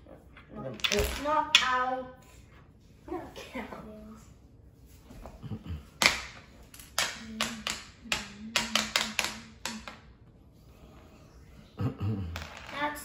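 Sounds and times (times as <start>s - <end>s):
wooden chess pieces clacking: 0.3s - 1.8s, 6.0s - 10.1s.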